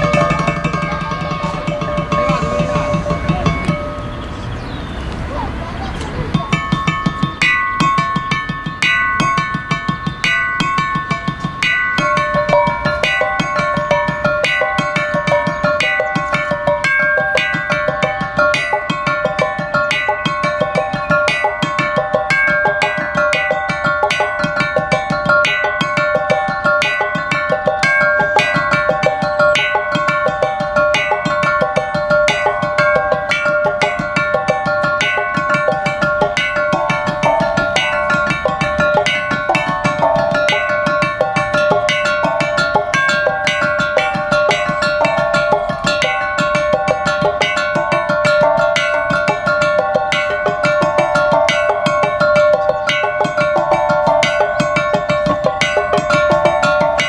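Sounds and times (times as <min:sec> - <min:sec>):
mallets striking metal tubes: 0:00.0 - 0:05.4, 0:06.0 - 0:57.0.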